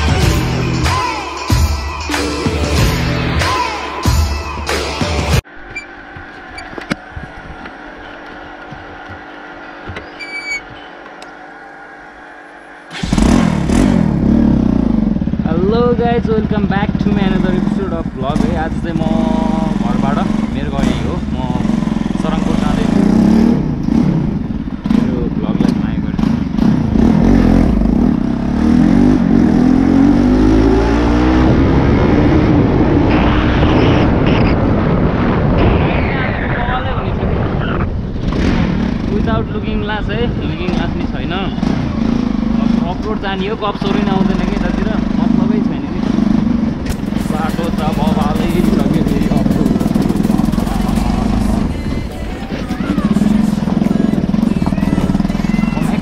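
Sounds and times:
motorcycle engine revving: 0:11.3 - 0:35.4, 0:38.0 - 0:56.0.

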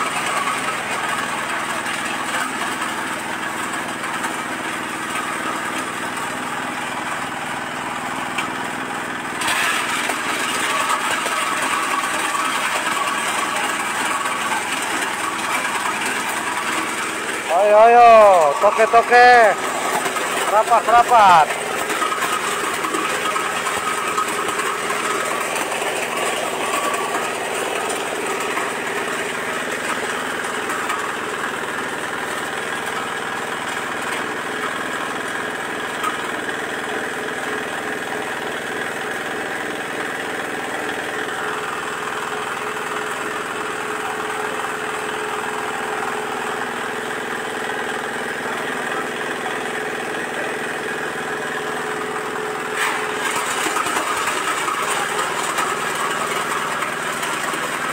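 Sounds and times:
diesel engine running: 0:00.0 - 0:57.9.

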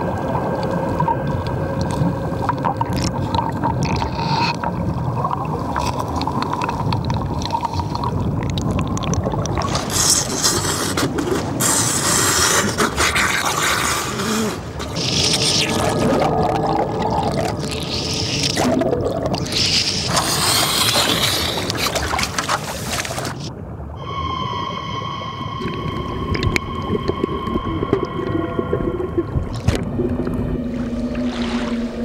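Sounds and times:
hissing rush of bubbles: 0:00.0 - 0:23.2
water churning and splashing: 0:00.0 - 0:32.0
continuous low rumble: 0:25.2 - 0:32.0.

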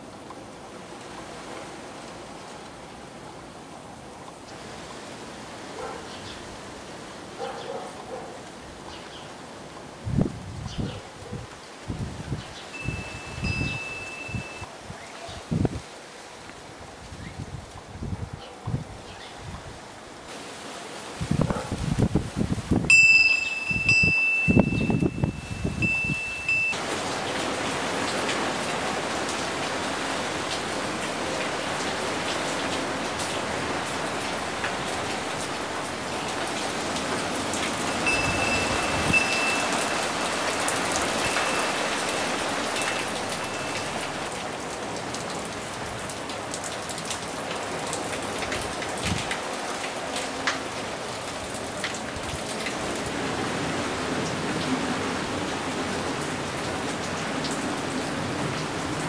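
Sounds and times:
rain falling on water and patio: 0:00.0 - 0:59.0
thin high ringing tone: 0:12.7 - 0:14.7, 0:22.9 - 0:26.8, 0:37.8 - 0:40.5, 0:41.1 - 0:44.3.

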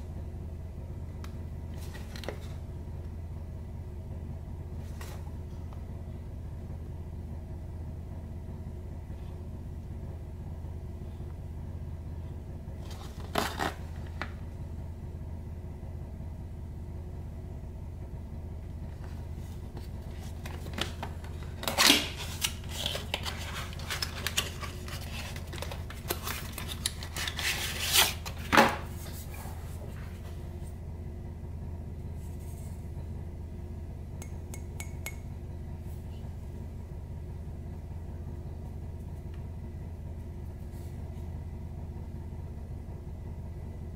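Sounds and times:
steady low hum: 0:00.0 - 0:43.9
box handling clicks and scrapes: 0:12.8 - 0:14.3, 0:19.7 - 0:29.8.

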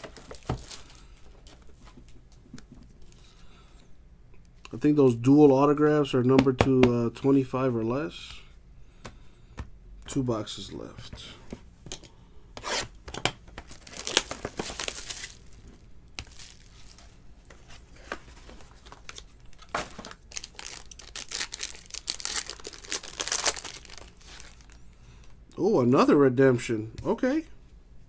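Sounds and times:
packaging crinkling and tearing: 0:00.0 - 0:01.3, 0:13.6 - 0:17.1, 0:18.5 - 0:24.8.

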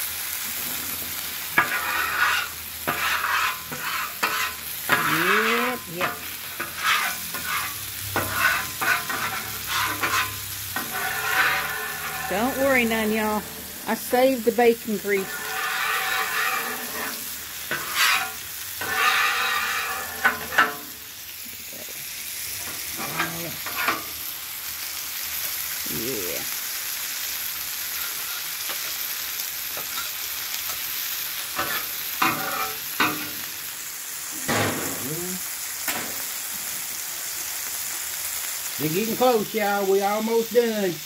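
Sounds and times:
burger patties sizzling on griddle: 0:00.0 - 0:41.0
metal spatula scraping steel: 0:00.5 - 0:14.0, 0:14.9 - 0:21.0, 0:22.6 - 0:24.2, 0:29.8 - 0:33.5.

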